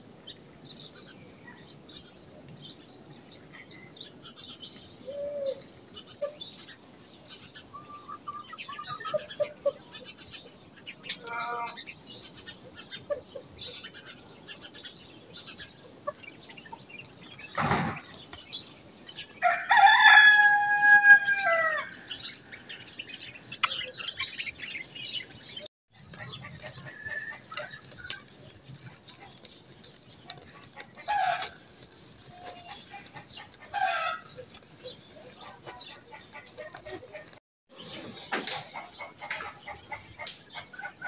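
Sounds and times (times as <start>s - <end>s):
chicken clucks: 7.7s - 10.2s, 26.0s - 37.4s, 38.0s - 41.0s
rooster crowing: 19.4s - 22.0s.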